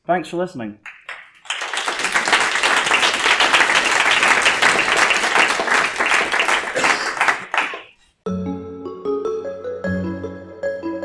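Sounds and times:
audience applauding: 0.8s - 8.0s.

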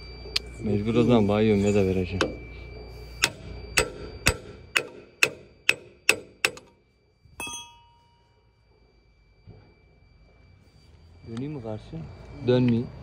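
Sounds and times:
ringing metallic clang: 1.7s - 8.5s
hammer blows on metal: 3.0s - 6.7s.

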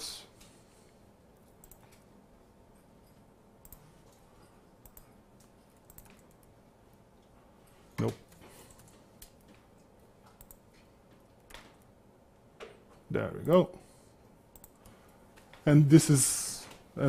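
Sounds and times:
computer keyboard keystrokes: 1.4s - 2.1s, 3.6s - 4.2s, 4.8s - 6.5s, 10.2s - 11.9s, 14.5s - 15.0s.

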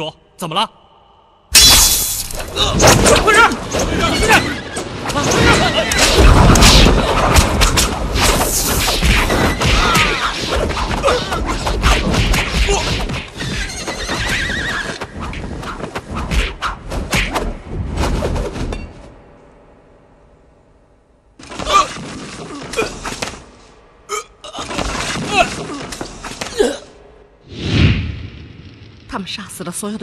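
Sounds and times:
horses whinnying: 13.4s - 15.0s.

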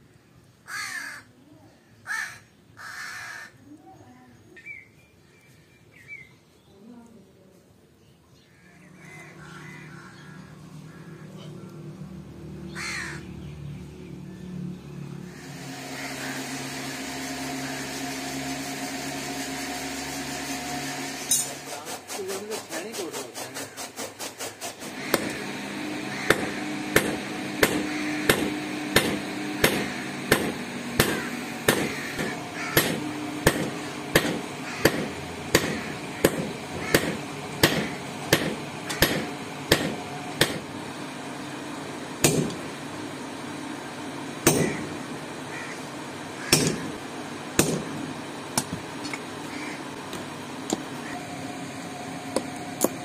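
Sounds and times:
steady hum: 14.8s - 53.0s
hammer striking hot steel on anvil: 25.1s - 25.4s, 26.3s - 40.6s, 42.2s - 42.6s, 44.4s - 44.8s, 46.5s - 46.9s, 47.6s - 48.0s.

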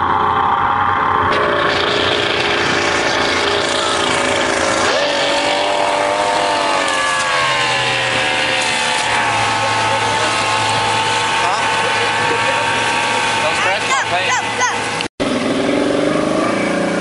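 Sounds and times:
outboard motor at high speed: 0.0s - 17.0s
spray hissing: 1.8s - 15.0s.

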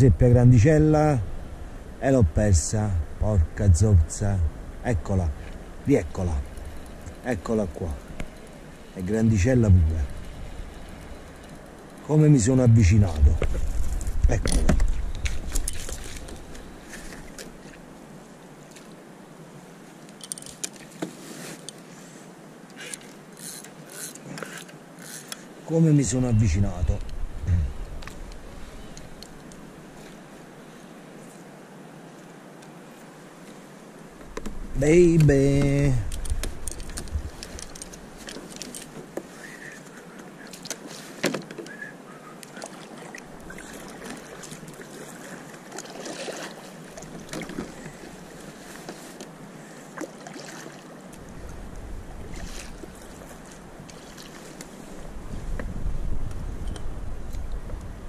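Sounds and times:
wind and water hiss: 0.0s - 58.0s
waves lapping against kayak hull: 13.0s - 19.0s, 32.9s - 57.9s
water splashing: 42.5s - 48.7s, 49.9s - 54.6s.

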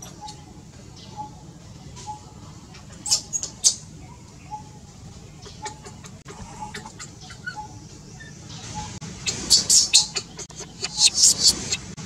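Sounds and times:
shrill animal calls: 5.6s - 11.8s.

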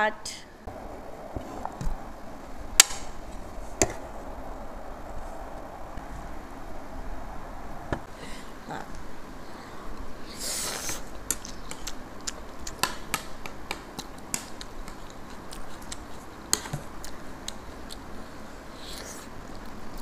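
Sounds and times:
chewing: 11.4s - 12.8s, 14.0s - 20.0s.

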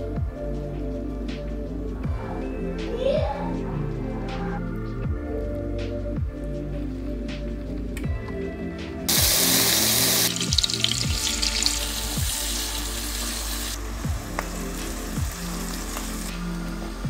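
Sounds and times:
background music: 0.0s - 17.0s
onions sizzling in oil: 9.1s - 16.3s.

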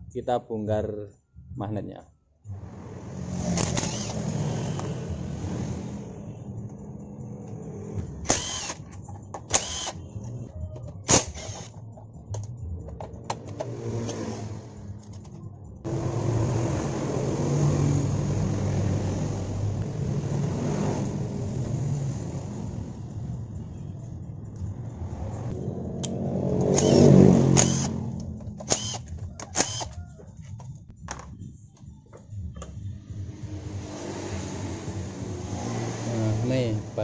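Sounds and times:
engine running: 2.5s - 30.0s, 32.6s - 37.0s.

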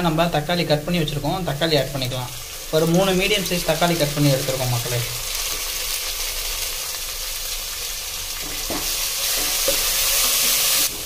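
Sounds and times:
vegetables sizzling in hot oil: 0.0s - 11.0s
spatula stirring in a pan: 8.3s - 11.0s.

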